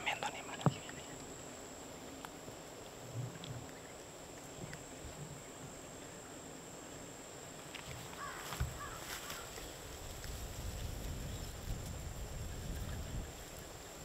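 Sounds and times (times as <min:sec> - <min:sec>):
low hiss: 0:00.0 - 0:14.0
bird calls: 0:08.0 - 0:09.8.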